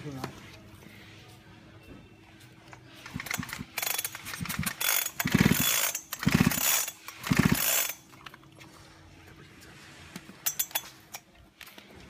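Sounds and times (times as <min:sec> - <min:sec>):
chainsaw recoil starter pulls: 0:03.0 - 0:08.0
engine turning over whirr: 0:03.1 - 0:08.0.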